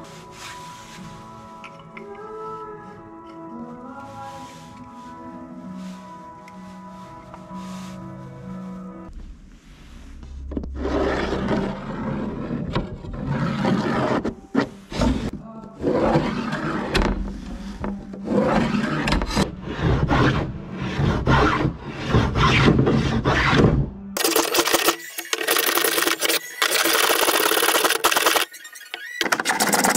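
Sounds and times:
music: 0.0s - 26.2s
hand tool scraping wood: 10.8s - 29.9s
hand plane shaving wood: 13.2s - 16.9s, 25.4s - 29.9s.

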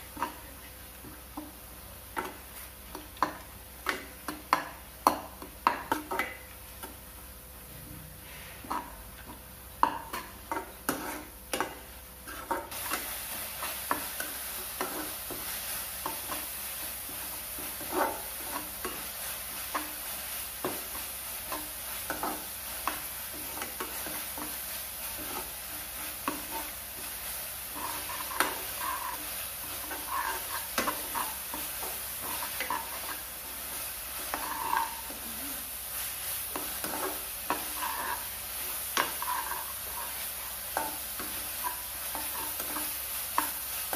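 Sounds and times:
onions sizzling in a pan: 0.0s - 43.9s.

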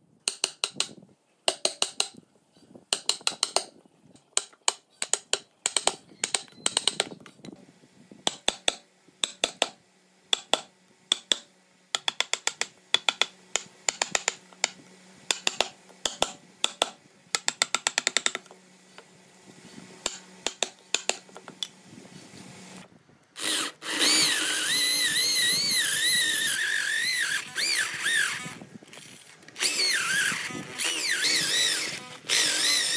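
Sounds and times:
electric drill whining: 23.4s - 32.9s.

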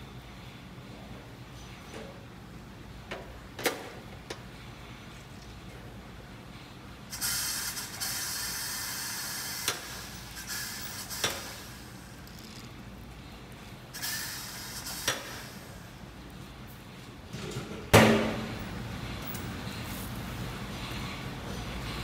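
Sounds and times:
compressed air hissing: 7.1s - 12.3s, 13.9s - 16.0s.

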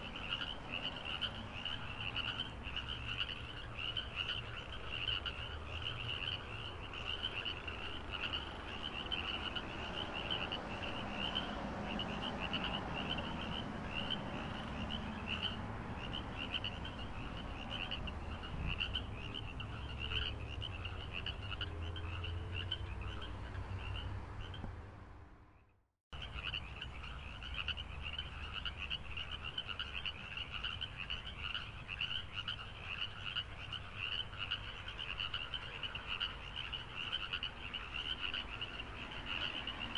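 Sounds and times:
frogs trilling: 0.0s - 24.7s, 26.2s - 39.9s.

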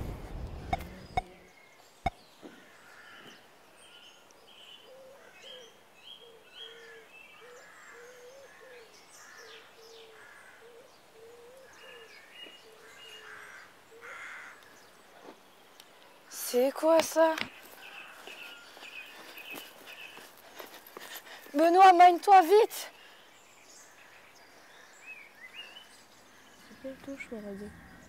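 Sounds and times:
birds chirping: 0.0s - 28.0s
bird cooing: 4.8s - 14.3s.

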